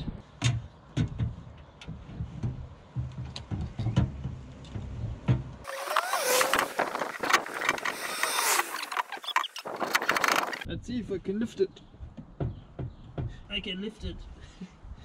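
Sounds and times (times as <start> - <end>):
cordless drill driving screws: 5.7 - 9.6.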